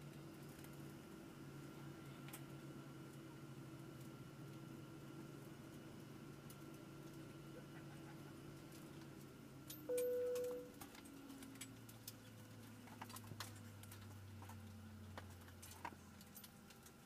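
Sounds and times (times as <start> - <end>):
cabin chime: 9.9 - 10.7.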